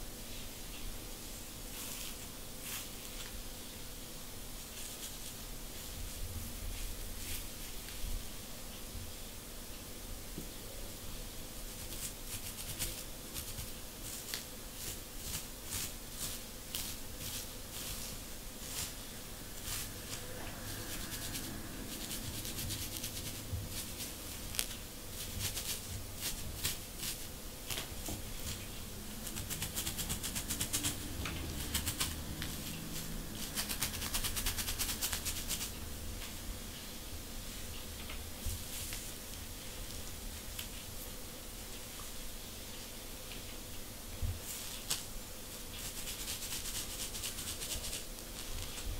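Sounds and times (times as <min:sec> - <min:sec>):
comb scratching scalp: 0:04.7 - 0:05.4, 0:11.7 - 0:35.8, 0:44.5 - 0:48.8.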